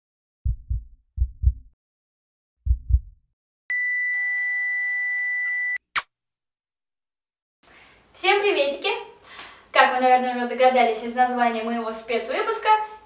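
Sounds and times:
heartbeat thumps: 0:00.4 - 0:01.8, 0:02.6 - 0:03.2.

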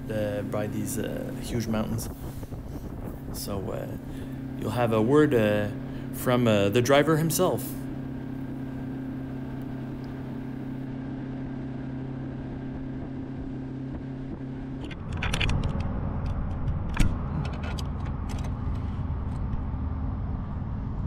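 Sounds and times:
jet boat motor droning: 0:00.0 - 0:21.0
scattered clicks: 0:14.8 - 0:19.6.

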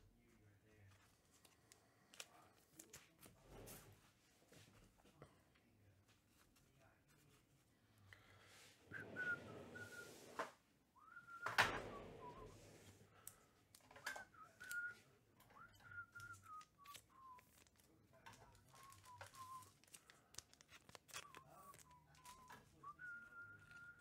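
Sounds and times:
person whistling a slow tune: 0:08.9 - 0:10.1, 0:11.0 - 0:12.6, 0:14.0 - 0:17.4, 0:18.8 - 0:19.7, 0:21.2 - 0:24.0
card packs rustling: 0:12.2 - 0:15.0, 0:15.6 - 0:24.0.

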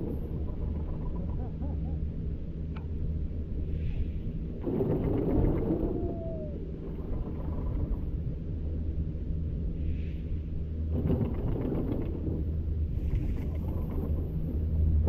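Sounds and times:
wind rumbling on microphone: 0:00.0 - 0:15.0.

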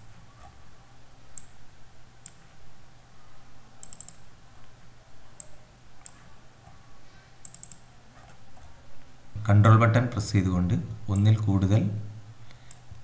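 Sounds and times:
faint low hum: 0:00.0 - 0:13.0
mouse buttons clicking: 0:03.8 - 0:04.2, 0:07.4 - 0:08.4.

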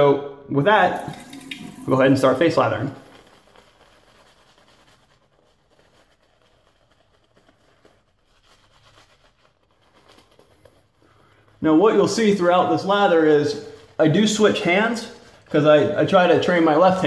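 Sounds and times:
shaving brush brushing stubble: 0:01.7 - 0:10.9, 0:11.5 - 0:17.0.

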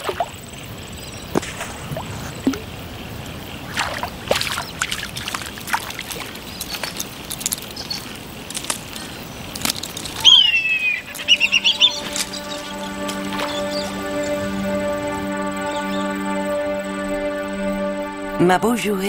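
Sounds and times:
water sloshing and splashing: 0:00.0 - 0:00.6, 0:01.3 - 0:10.3
bird whistle: 0:10.2 - 0:14.8.

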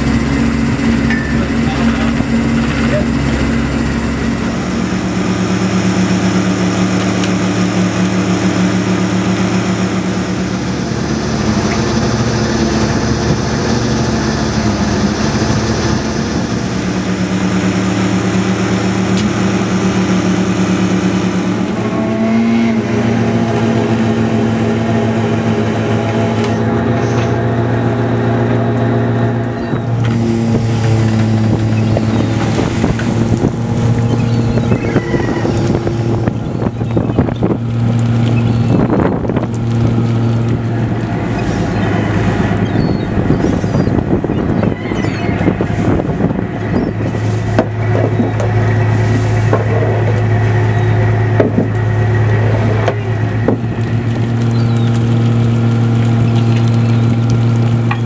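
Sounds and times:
boat engine droning: 0:00.0 - 0:58.0
fish sliding and splashing: 0:47.0 - 0:57.9.

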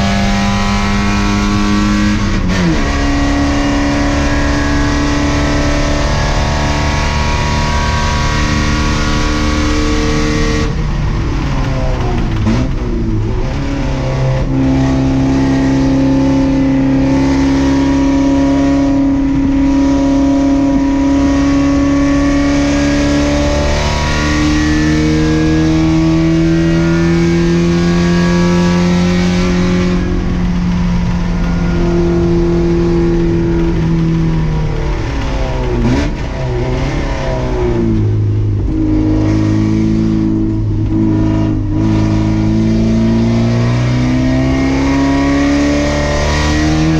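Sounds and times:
race car engine revving: 0:00.0 - 0:46.9.

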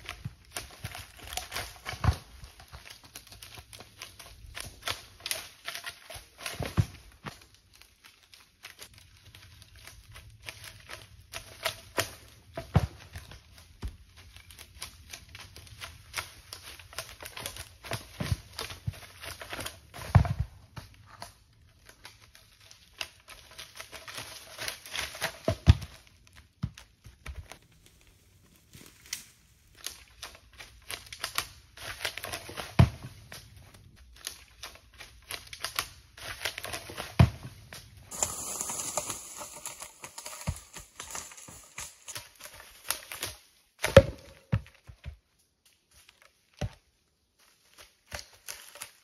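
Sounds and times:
logs knocking down a slope: 0:17.2 - 0:21.3, 0:35.6 - 0:45.2
brush crackling: 0:27.2 - 0:43.6, 0:47.4 - 0:49.0.

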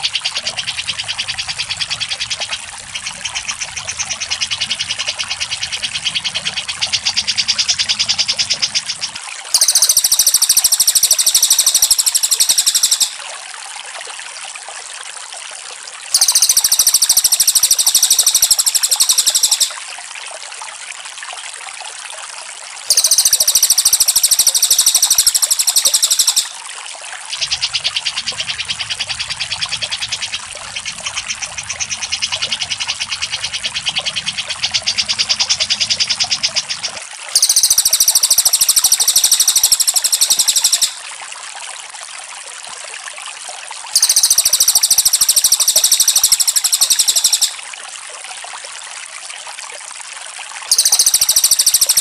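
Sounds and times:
water trickling: 0:00.0 - 0:52.0
bird shrill rapid trill: 0:09.5 - 0:13.2, 0:16.2 - 0:19.8, 0:22.9 - 0:26.6, 0:37.4 - 0:41.0, 0:44.0 - 0:47.6, 0:50.7 - 0:52.0
soft rapid chattering: 0:09.6 - 0:13.2, 0:16.2 - 0:19.8, 0:22.9 - 0:26.6, 0:37.4 - 0:41.0, 0:44.0 - 0:47.6, 0:50.7 - 0:52.0.

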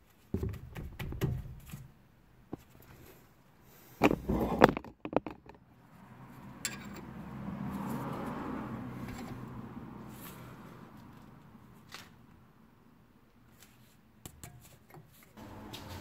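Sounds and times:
tools clinking on metal: 0:06.6 - 0:07.1.

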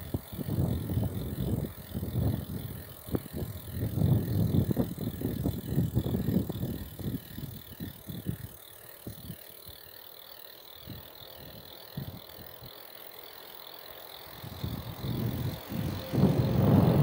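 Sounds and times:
wind gusts on microphone: 0:00.0 - 0:08.5, 0:14.4 - 0:17.0
bicycle freewheel ticking: 0:00.0 - 0:17.0.

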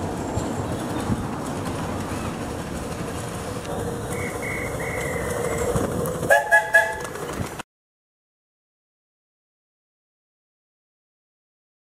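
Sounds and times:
miniature steam train running: 0:00.0 - 0:07.6
train whistle toots: 0:06.3 - 0:07.0.

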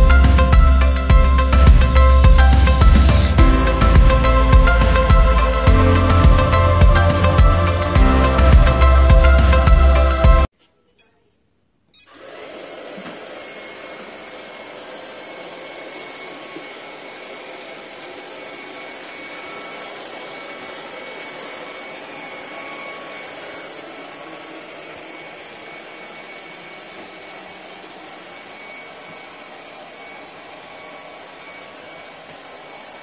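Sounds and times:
robot vacuum whirring: 0:12.0 - 0:33.0.

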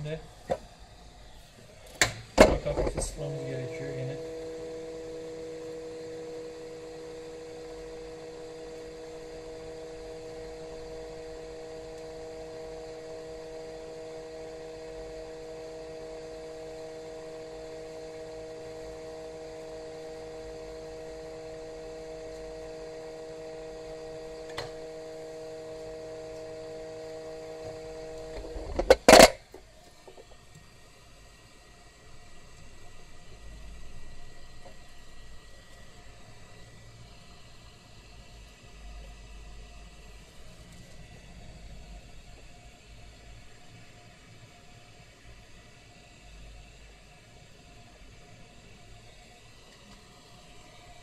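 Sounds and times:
hot-air gun fan hum: 0:00.0 - 0:51.0.

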